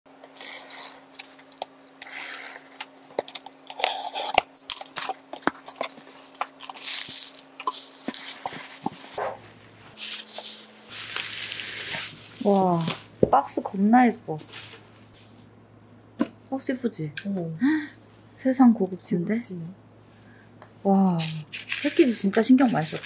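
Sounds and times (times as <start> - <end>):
faint steady hum: 0.1 - 23.0
bubble wrap crinkling and crackling: 0.3 - 13.2, 20.9 - 23.0.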